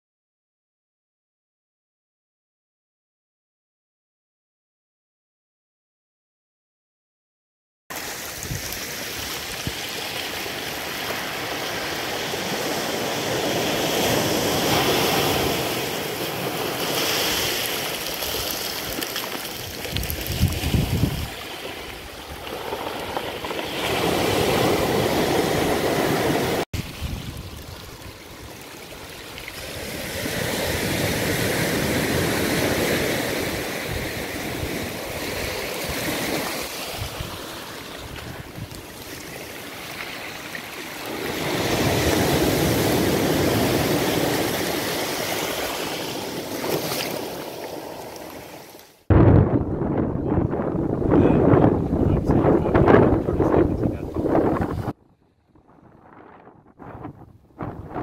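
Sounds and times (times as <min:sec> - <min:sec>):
small waves breaking on beach: 0:07.9 - 0:49.1.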